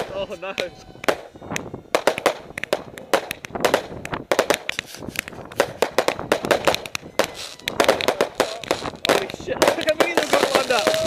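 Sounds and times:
fireworks bangs and pops: 0.0 - 11.0.

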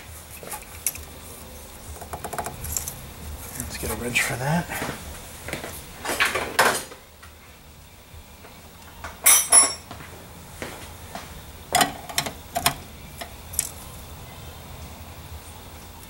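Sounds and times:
metal hand tools clinking: 9.2 - 9.8.

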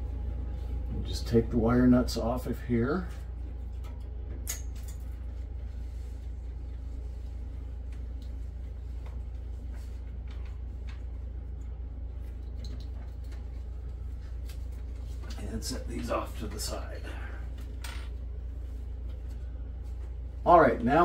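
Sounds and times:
low hum: 0.0 - 21.0.

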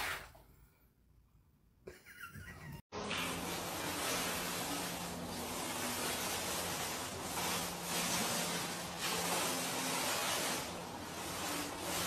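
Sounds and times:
paint roller rubbing on wall: 0.0 - 0.4, 3.0 - 12.0.

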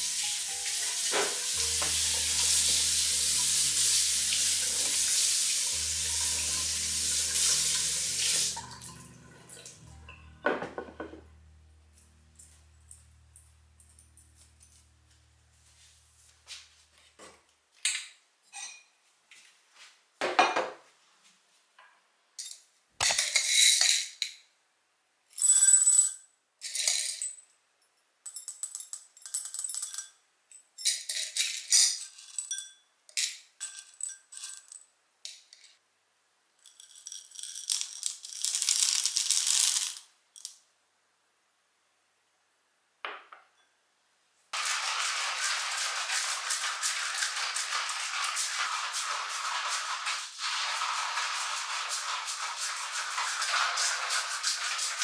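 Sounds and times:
glass and metal clinks: 18.5 - 18.9, 28.3 - 34.8
coffee beans rattling in glass: 36.6 - 40.5, 44.6 - 55.0
hand coffee grinder grinding: 44.6 - 55.0.

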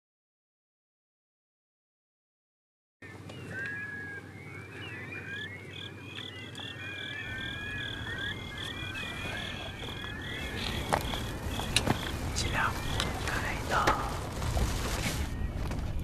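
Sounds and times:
steady pulsed animal call: 3.0 - 13.8
small animals chirping and whistling: 3.3 - 13.8
low rumble: 7.2 - 16.0.

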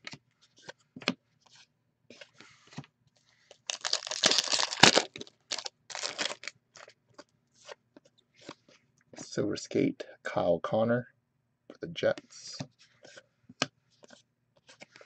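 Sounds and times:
wrapper tearing and crinkling: 3.7 - 6.5.

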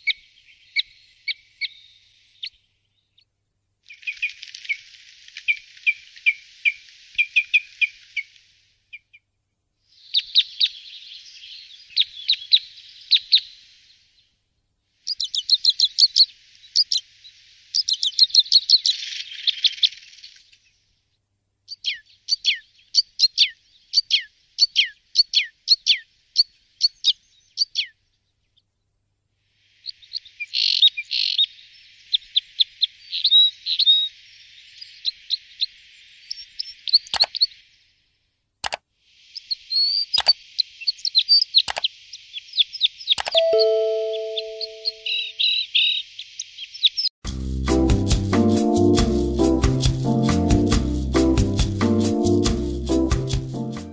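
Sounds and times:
birds chirping: 39.4 - 47.1.

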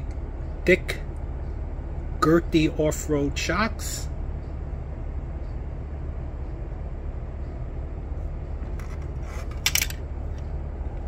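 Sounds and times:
low room hum: 0.0 - 11.0
plastic parts clicking and rustling: 8.8 - 10.0.

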